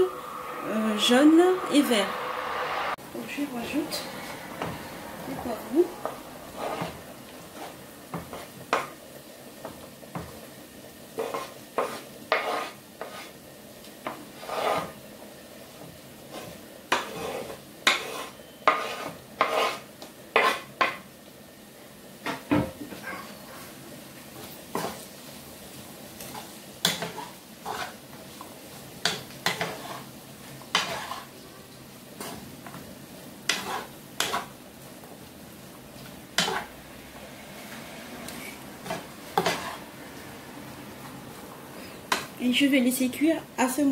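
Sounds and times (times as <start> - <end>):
faint sizzle: 0.0 - 43.9
wooden spatula scraping and knocking: 3.9 - 4.9, 6.0 - 8.9, 11.2 - 13.4, 14.0 - 15.0, 15.8 - 21.0, 24.3 - 25.2, 26.2 - 31.4, 32.2 - 32.9, 33.5 - 35.2, 36.0 - 36.7, 38.4 - 39.9.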